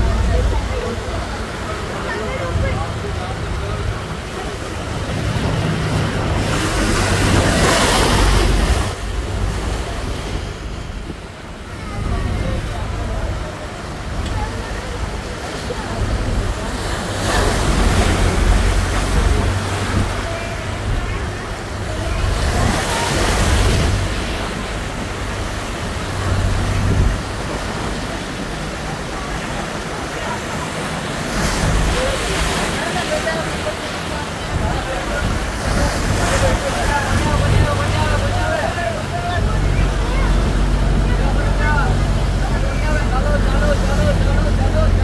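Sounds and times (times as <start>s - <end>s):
wind buffeting microphone: 0.0s - 29.7s
floodwater rushing: 0.0s - 45.0s.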